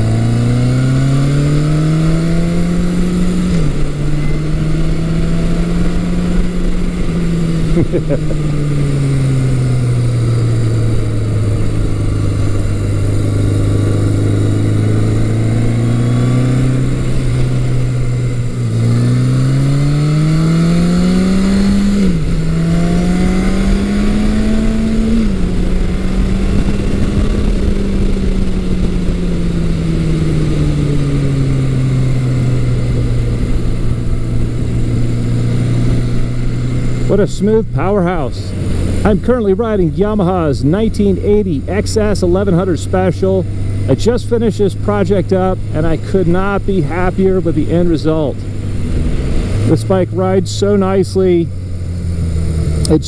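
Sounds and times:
wind noise: 0.0s - 37.2s
motorcycle engine revving: 0.0s - 53.0s.

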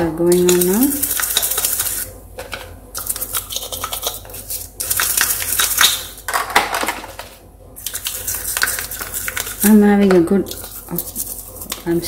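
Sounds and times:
brush scrubbing plastic: 3.0s - 5.8s, 7.8s - 12.0s.

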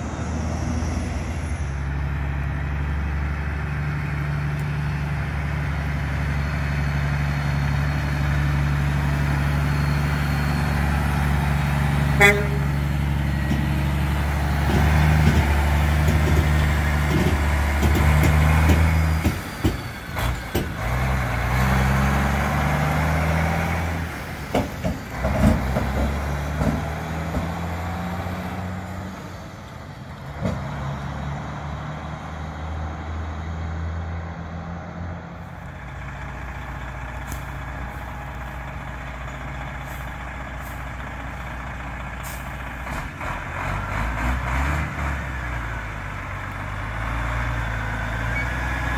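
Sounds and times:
truck diesel engine accelerating: 0.0s - 48.9s.

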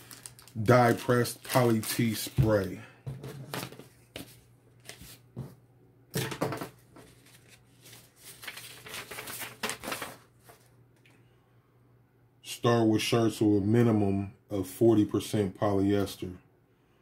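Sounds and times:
paper leaflet rustling and crinkling: 0.0s - 2.8s, 3.4s - 5.5s, 6.8s - 11.1s.

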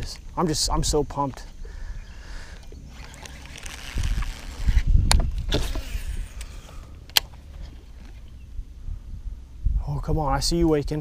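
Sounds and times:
wind noise: 0.0s - 11.0s
reel clicks: 2.5s - 8.3s
rod handling rustle: 2.5s - 8.3s.

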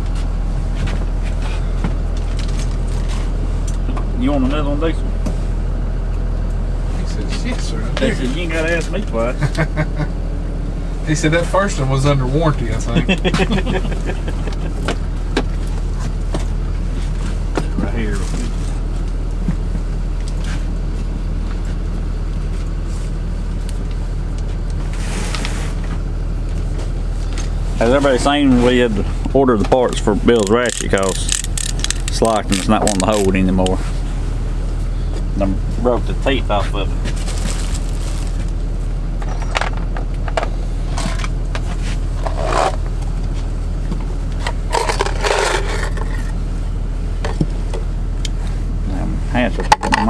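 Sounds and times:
engine idling: 0.0s - 50.0s
steady low hum: 0.0s - 50.0s
metal tool handling scrapes: 44.7s - 46.3s.

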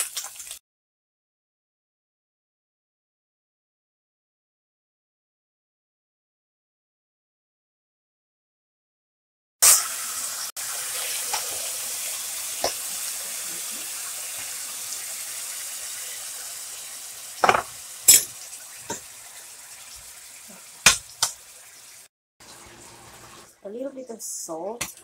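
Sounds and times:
meat sizzling in a pan: 0.0s - 0.6s, 9.6s - 23.5s.

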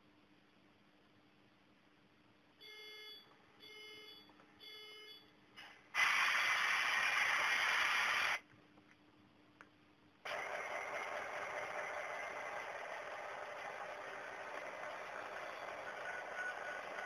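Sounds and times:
loud hiss: 6.0s - 8.4s.

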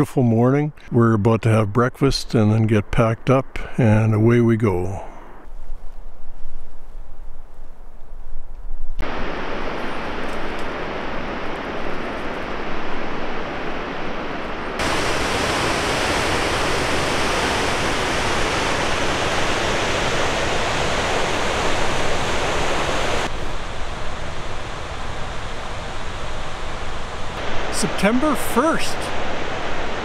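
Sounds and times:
steady rushing noise: 9.0s - 30.0s.

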